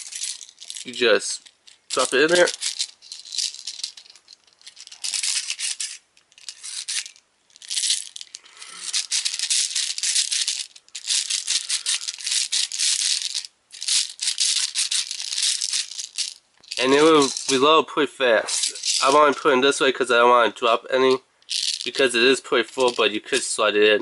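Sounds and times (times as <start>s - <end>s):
plastic pellets rattling in tube: 0.0s - 17.7s, 18.4s - 19.5s, 21.4s - 23.6s.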